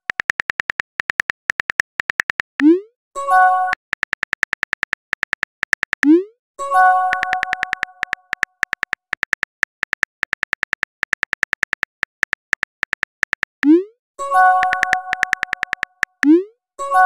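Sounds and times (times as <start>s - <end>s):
phone keyboard typing clicks: 0.0s - 2.7s, 3.7s - 6.2s, 6.8s - 13.8s, 14.4s - 16.4s.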